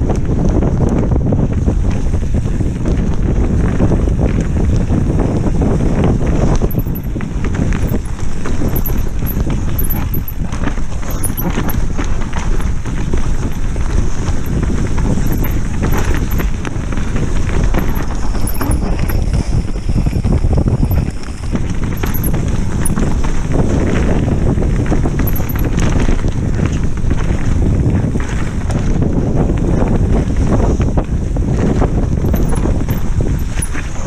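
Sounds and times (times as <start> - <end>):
bike tyres rumbling on dirt: 0.0 - 34.0
wind on microphone: 0.0 - 34.0
camera rattling: 6.2 - 26.3, 32.1 - 34.0
bike clacking and knocking: 6.4 - 23.8, 25.0 - 26.2, 32.2 - 34.0.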